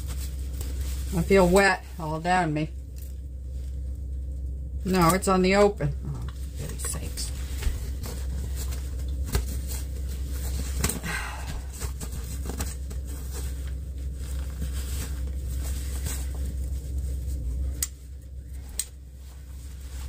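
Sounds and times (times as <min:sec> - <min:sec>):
nylon jacket rustling: 0:00.0 - 0:02.2, 0:06.4 - 0:20.0
steady low rumble: 0:00.0 - 0:20.0.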